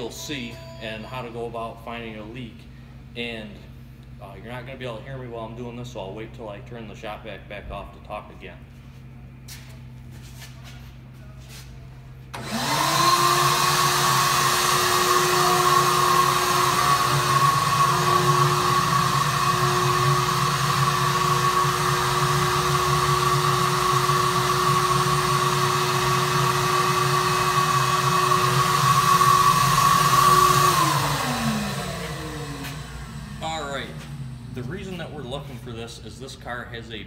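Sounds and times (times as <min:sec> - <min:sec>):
shop vac whining: 0:00.0 - 0:37.0.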